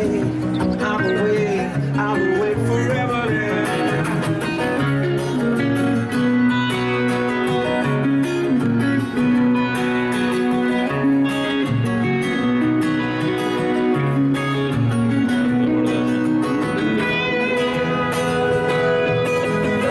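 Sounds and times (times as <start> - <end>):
guitar background music: 0.0 - 19.9.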